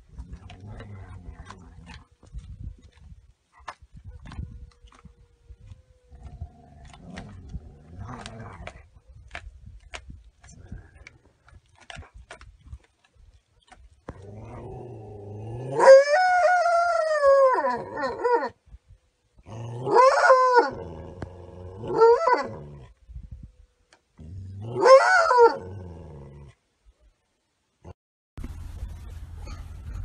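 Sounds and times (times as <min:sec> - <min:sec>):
wolf crying out: 0:15.3 - 0:18.6, 0:19.6 - 0:22.9, 0:24.6 - 0:25.8.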